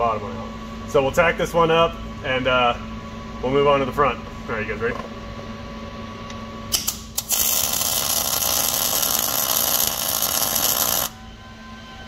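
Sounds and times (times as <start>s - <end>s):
steady welding arc noise: 6.7s - 11.2s
welder arc strikes: 6.7s - 11.2s.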